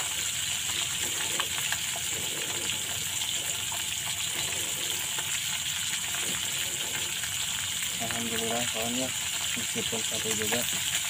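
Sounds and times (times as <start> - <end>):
fish sizzling in oil: 0.0 - 11.0.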